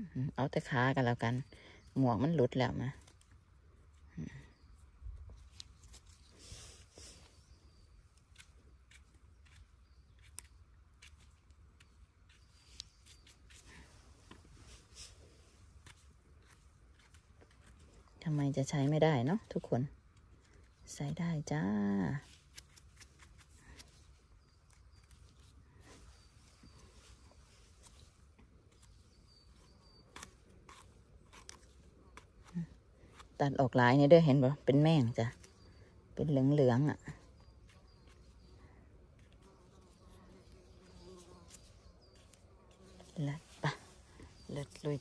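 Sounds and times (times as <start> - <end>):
small blade snipping mushrooms: 5.2 - 6.3, 8.1 - 14.4, 15.8 - 21.5, 22.2 - 25.6, 27.8 - 33.4, 37.2 - 43.2.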